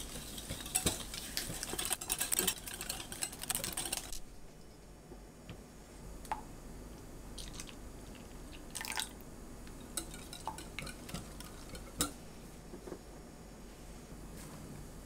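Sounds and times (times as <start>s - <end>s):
whisk scraping glass bowl: 0.0s - 4.2s, 9.9s - 12.1s.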